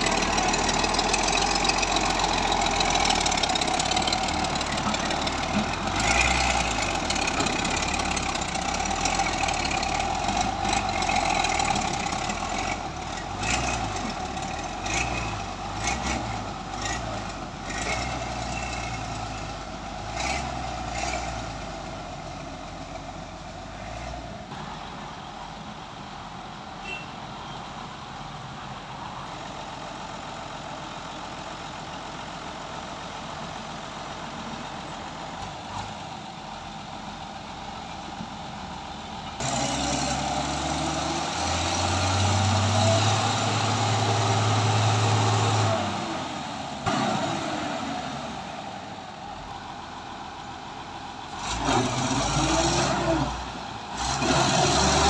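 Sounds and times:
diesel engine revving under load: 0.0s - 24.8s, 39.1s - 55.0s.

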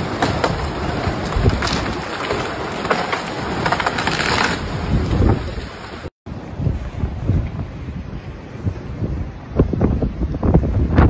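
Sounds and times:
strong wind buffeting microphone: 4.6s - 11.0s.

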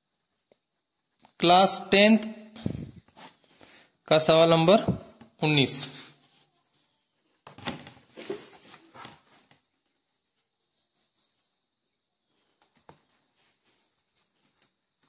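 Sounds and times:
faint high chirp: 10.6s - 11.8s.

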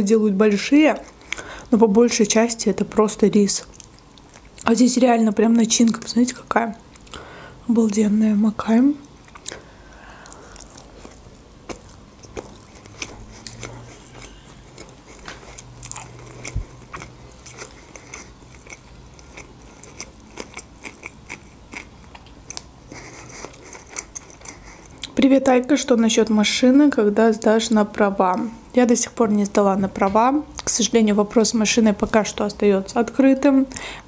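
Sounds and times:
mouth chewing food: 3.6s - 4.7s, 9.1s - 25.2s.

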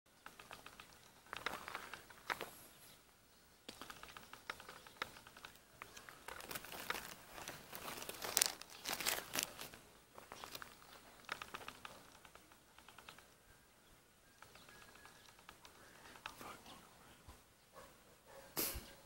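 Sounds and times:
crinkling and rustling: 0.2s - 2.6s, 3.7s - 12.6s
small clicks: 0.2s - 2.6s, 3.7s - 13.4s, 14.4s - 16.4s.

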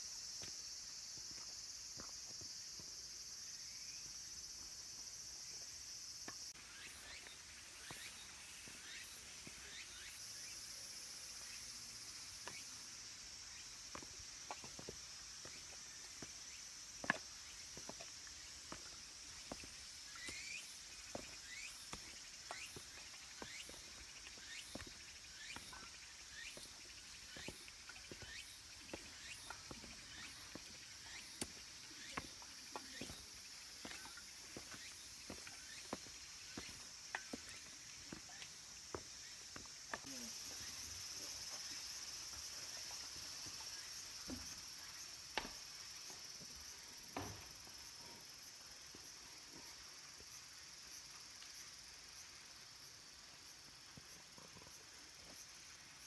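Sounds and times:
cicadas droning: 0.0s - 56.0s
footsteps on stone: 0.3s - 3.0s, 13.8s - 41.1s, 45.3s - 48.0s.

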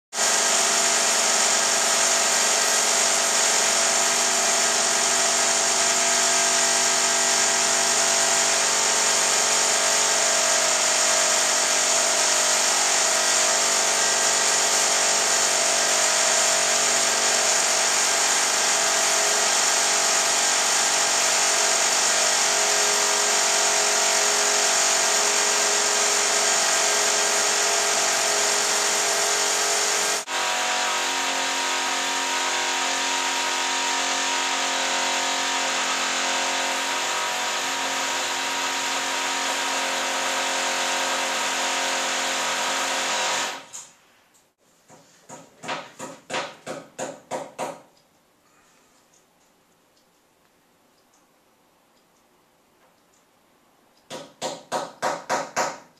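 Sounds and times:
impact drill boring into wall: 0.1s - 43.9s.

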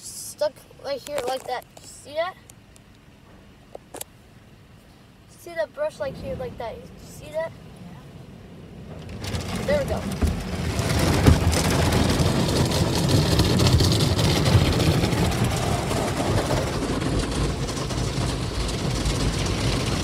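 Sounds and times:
wash machinery running: 8.0s - 20.0s
car wash brushes scrubbing: 9.0s - 20.0s.

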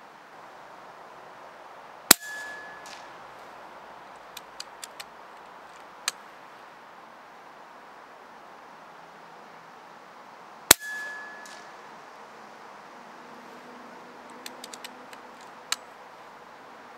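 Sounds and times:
pellet clanging on steel target: 2.1s - 3.1s, 10.7s - 11.8s
light metallic clicks: 4.2s - 6.2s, 14.2s - 16.0s.

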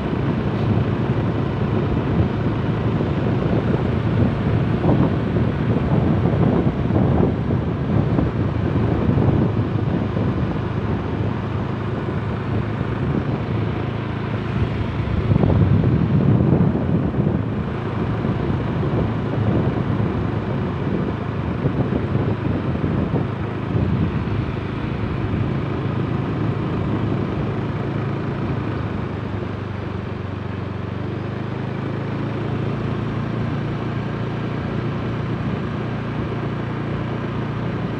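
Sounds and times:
wind buffeting microphone: 0.0s - 30.4s
tyre and road noise: 0.0s - 37.9s
vehicle engine hum: 0.0s - 37.9s.

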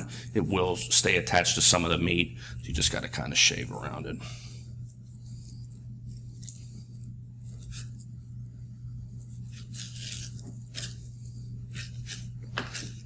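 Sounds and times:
steady low hum: 0.0s - 13.0s
knife scraping and slicing fish: 7.5s - 8.1s, 9.3s - 13.0s.

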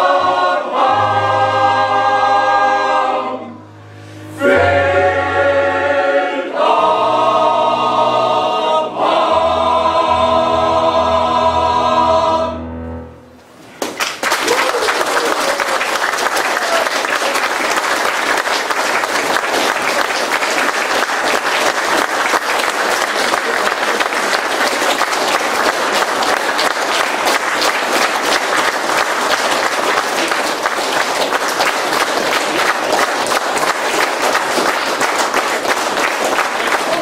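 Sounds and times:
audience applauding: 13.8s - 37.0s.

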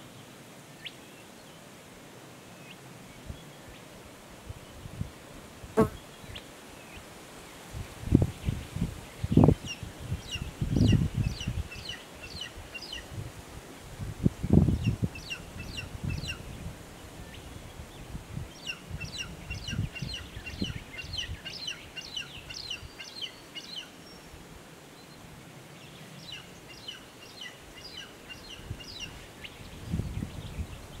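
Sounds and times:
eagle chick chirping: 18.6s - 23.9s.

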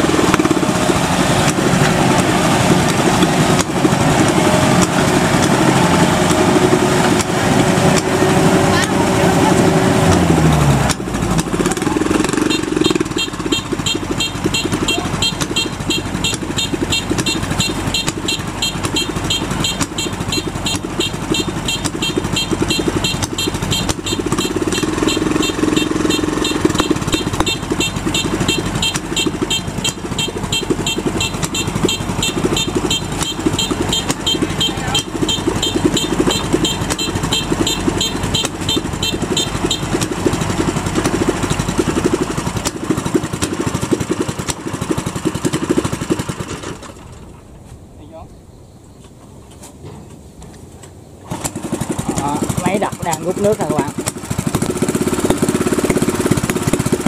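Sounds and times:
combine harvester diesel engine: 0.0s - 57.0s.

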